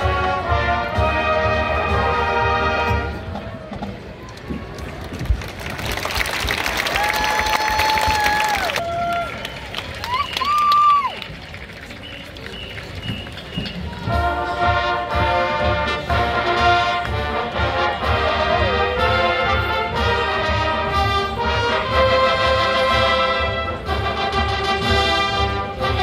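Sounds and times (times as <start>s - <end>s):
brass chords: 0.0s - 3.4s, 14.0s - 26.0s.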